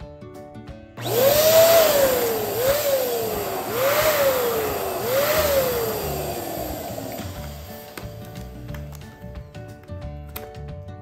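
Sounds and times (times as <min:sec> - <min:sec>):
electric balloon pump whining: 0:01.0 - 0:09.0.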